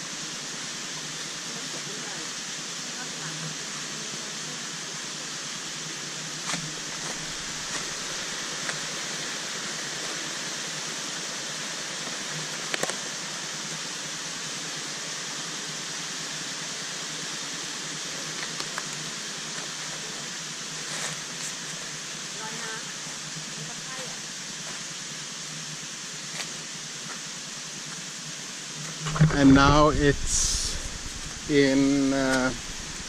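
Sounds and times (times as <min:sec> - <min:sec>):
waterfall rushing: 0:06.8 - 0:10.5, 0:29.1 - 0:33.0.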